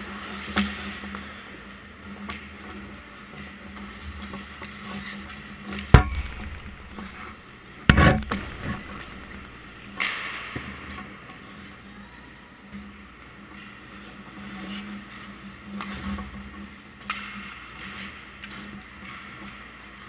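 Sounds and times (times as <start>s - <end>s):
steady low hum: 6.0s - 10.0s
hockey stick knocks: 6.0s - 10.3s
hockey puck sharp crack: 6.0s - 10.6s.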